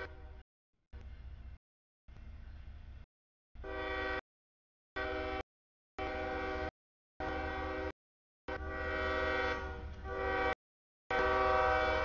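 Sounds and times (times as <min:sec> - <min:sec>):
locomotive air horn blasts: 0:00.0 - 0:00.4, 0:03.6 - 0:04.2, 0:05.0 - 0:05.4, 0:06.0 - 0:12.0.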